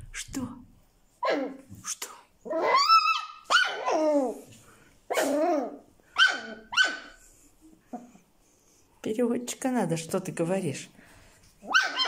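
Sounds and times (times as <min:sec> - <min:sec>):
puppy barking and grumbling: 0:01.2 - 0:01.7, 0:02.4 - 0:04.5, 0:05.1 - 0:07.2, 0:11.6 - 0:12.0.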